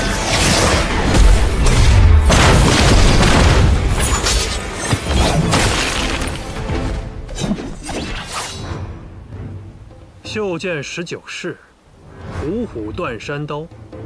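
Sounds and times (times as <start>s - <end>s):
dramatic music: 0.0s - 10.9s.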